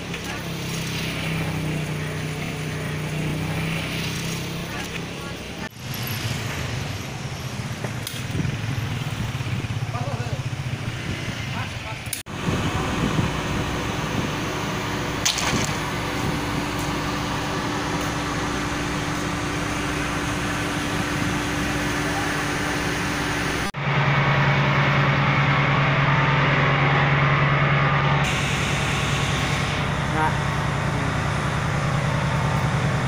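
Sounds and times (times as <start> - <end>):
low drone of machinery: 12.1 - 33.0
machinery hum: 12.3 - 33.0.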